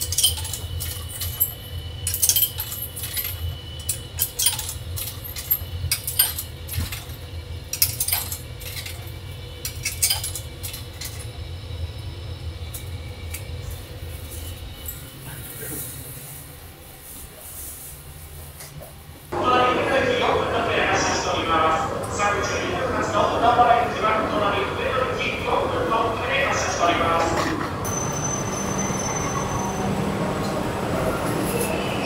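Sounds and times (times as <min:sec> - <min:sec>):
light clinks and clatter: 0:00.0 - 0:11.3.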